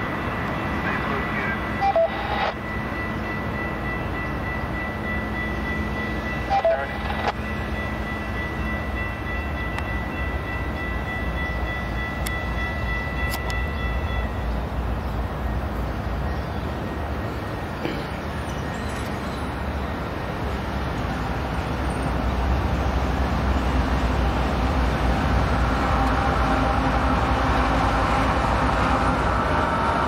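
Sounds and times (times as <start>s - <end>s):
train rumble: 0.0s - 30.0s
high-pitched ringing tone: 1.2s - 14.6s.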